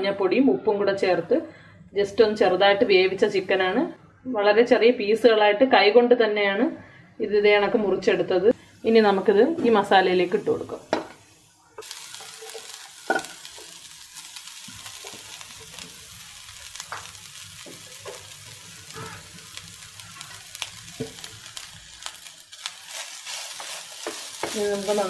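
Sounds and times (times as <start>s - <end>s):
chicken sizzling in a pan: 8.8s - 25.0s
wooden spatula scraping and tapping: 22.9s - 25.0s.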